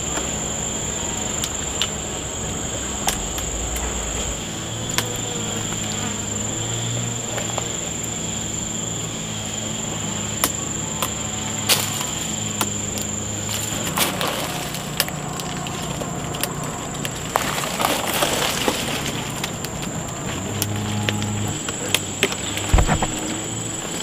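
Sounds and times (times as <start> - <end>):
high-pitched insect drone: 0.0 - 24.0
low hum: 0.0 - 24.0.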